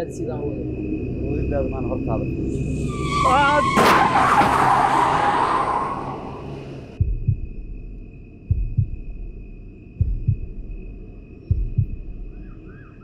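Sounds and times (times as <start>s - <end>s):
crash: 3.2s - 6.4s
heartbeat thumps: 7.0s - 12.5s.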